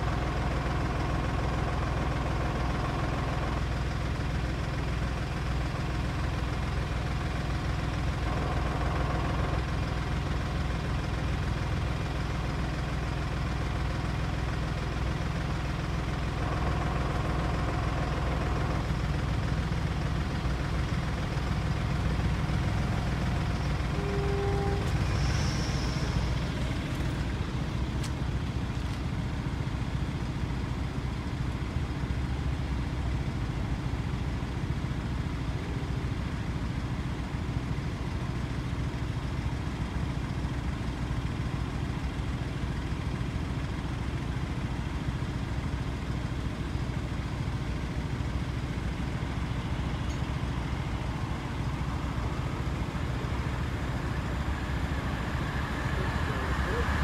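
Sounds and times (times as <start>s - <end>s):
low engine rumble: 0.0s - 57.0s.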